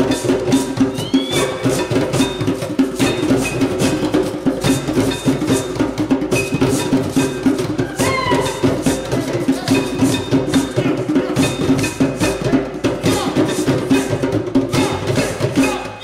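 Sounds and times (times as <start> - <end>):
djembe drums playing: 0.0 - 16.0.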